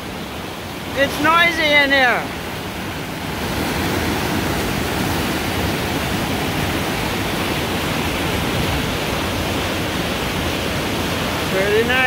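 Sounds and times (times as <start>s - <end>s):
waterfall rushing over rocks: 0.0s - 12.0s.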